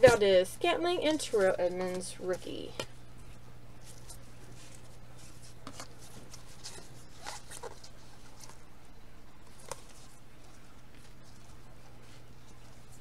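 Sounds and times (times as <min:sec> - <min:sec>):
low electrical hum: 0:00.0 - 0:13.0
cardboard cards scraping: 0:03.8 - 0:08.7, 0:09.4 - 0:13.0.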